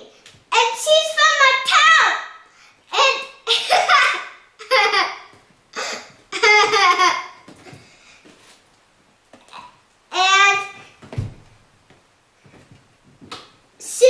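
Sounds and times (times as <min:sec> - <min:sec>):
girl laughing: 0:03.5 - 0:07.8.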